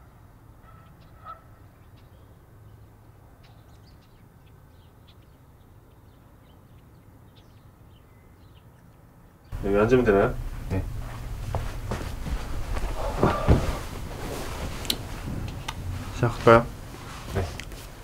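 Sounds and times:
small birds chirping: 0.0 - 13.5
distant traffic hum: 0.0 - 18.0.

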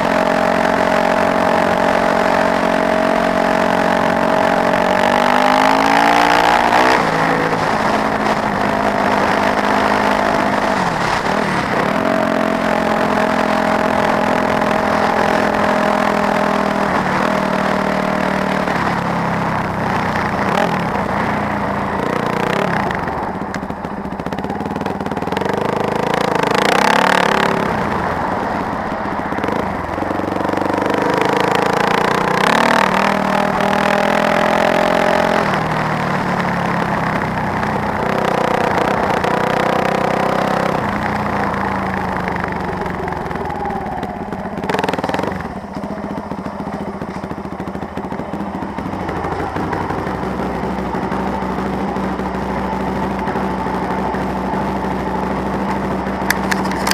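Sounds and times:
motorcycle engine revving: 0.0 - 56.9.

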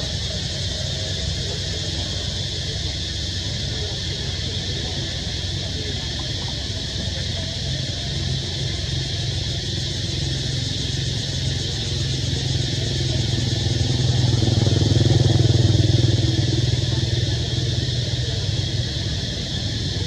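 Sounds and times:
vehicle engine humming: 10.1 - 20.0.

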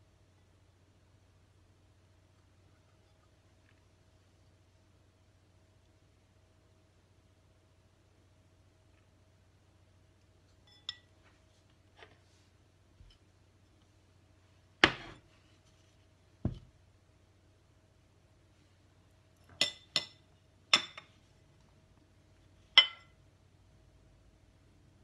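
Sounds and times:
metal spoon clinking on china: 10.7 - 11.1, 22.8 - 23.1.

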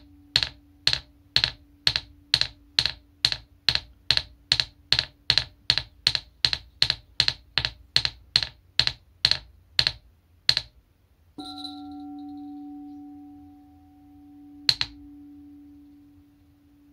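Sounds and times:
singing bowl ringing: 11.4 - 16.9
tingsha metallic strikes: 11.4 - 16.9.

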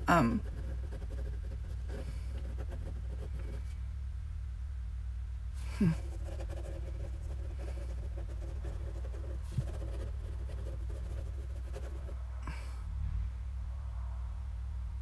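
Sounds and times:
pen scribbling on paper: 0.0 - 3.7, 5.8 - 12.2
steady low hum: 0.0 - 15.0.

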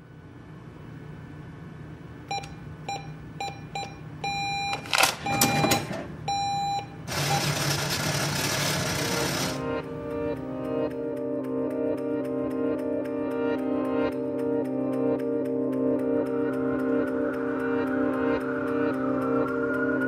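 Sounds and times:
cash register keypad beeps: 2.3 - 9.6.

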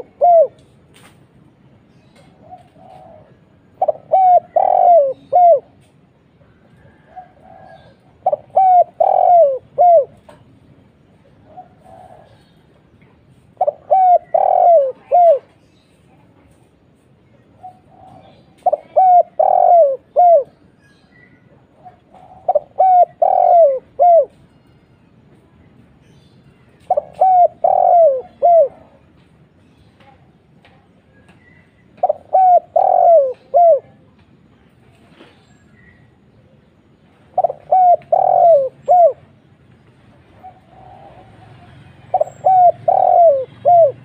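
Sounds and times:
dove cooing: 0.0 - 0.6, 2.2 - 5.8, 6.8 - 10.5, 11.4 - 12.5, 13.6 - 15.6, 17.5 - 20.6, 21.7 - 24.4, 26.9 - 29.1, 31.9 - 34.0, 37.3 - 39.3, 40.3 - 44.0.

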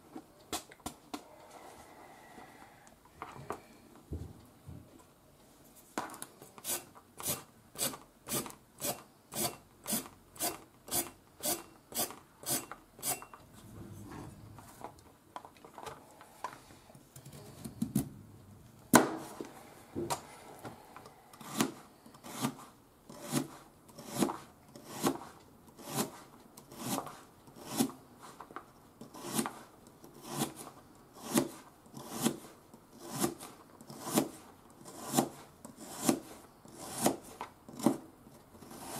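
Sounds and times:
soft handling sounds: 2.9 - 6.7, 13.4 - 21.2.

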